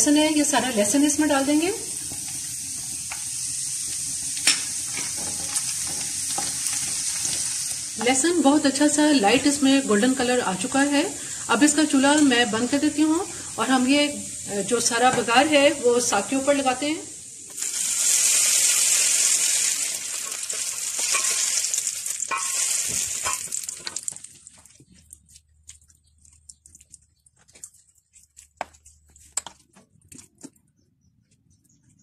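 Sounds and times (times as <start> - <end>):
hot oil sizzling: 0.0 - 24.4.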